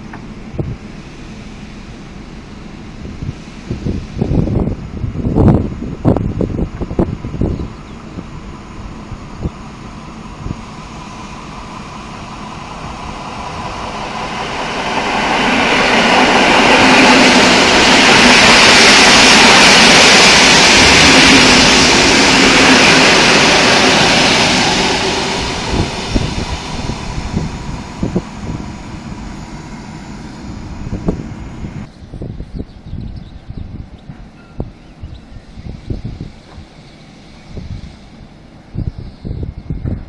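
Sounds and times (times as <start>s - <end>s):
train wheels rumbling on rails: 0.0s - 40.0s
wind thumps on microphone: 3.0s - 8.3s, 24.6s - 29.4s, 30.4s - 36.7s, 38.7s - 40.0s.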